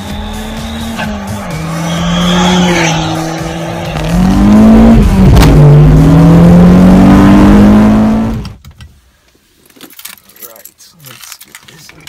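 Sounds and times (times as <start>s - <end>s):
car engine accelerating hard: 0.0s - 8.6s.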